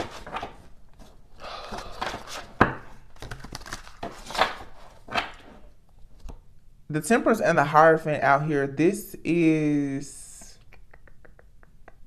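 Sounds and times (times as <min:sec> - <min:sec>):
cards sliding and rustling: 0:00.0 - 0:06.4.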